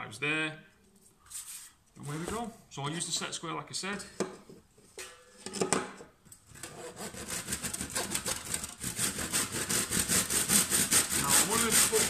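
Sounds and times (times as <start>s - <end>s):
handsaw sawing strokes: 6.6s - 12.0s.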